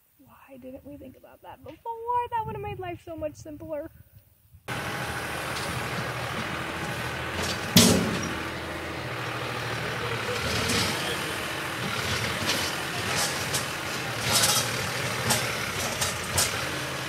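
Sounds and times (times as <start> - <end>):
tractor engine running: 4.7 - 17.0
loud clunk: 5.4 - 8.6, 10.4 - 16.8.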